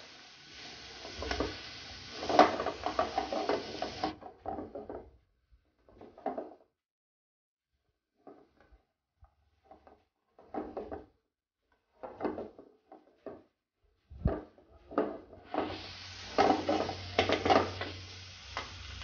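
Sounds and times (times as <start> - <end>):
spatula scraping frying pan: 0.0 - 4.1, 15.4 - 19.0
vegetables sizzling in oil: 0.0 - 4.1, 15.4 - 19.0.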